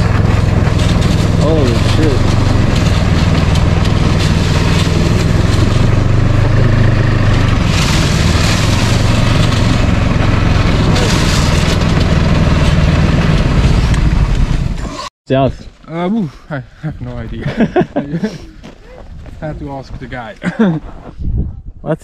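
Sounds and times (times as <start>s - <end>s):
snowmobile engine running: 0.0s - 15.0s.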